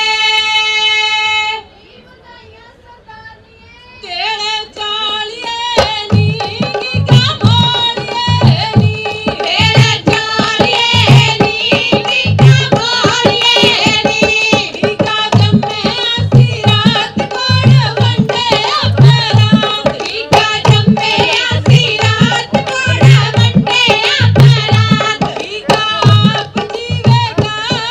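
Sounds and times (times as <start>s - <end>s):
women singing in chorus: 0.0s - 27.9s
hand drum beat: 5.1s - 27.9s
rhythmic hand clapping: 5.8s - 27.9s.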